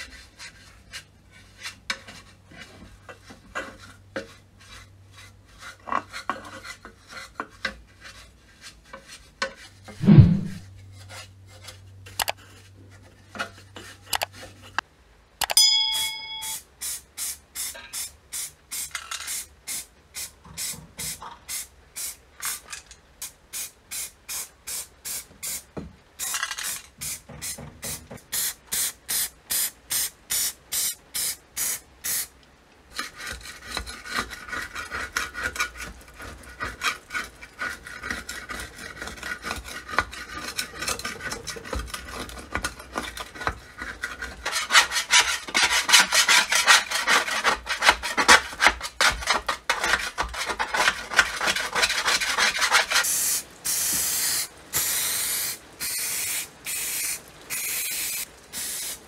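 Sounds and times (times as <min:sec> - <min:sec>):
filing or scrubbing metal: 0:32.9 - 0:53.3.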